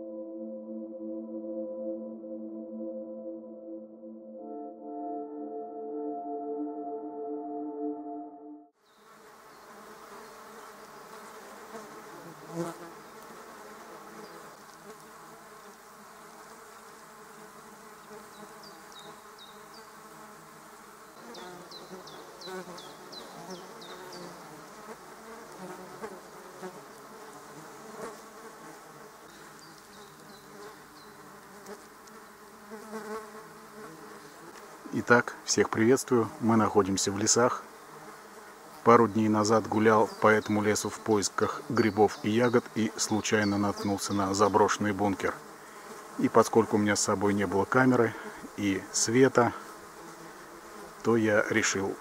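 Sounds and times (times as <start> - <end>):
flies buzzing: 8.7 - 52.0
bird chirping: 21.1 - 24.4, 29.3 - 31.2, 39.7 - 44.7.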